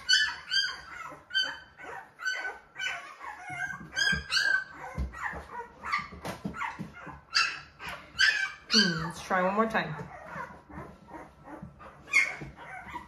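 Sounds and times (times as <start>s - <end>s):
puppies squealing and whining: 0.0s - 13.0s.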